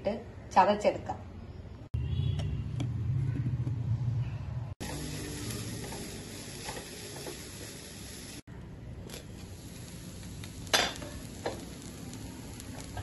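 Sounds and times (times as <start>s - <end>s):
mixer grinder motor hum: 4.8s - 8.4s
steady hiss: 4.8s - 8.5s, 9.1s - 13.0s.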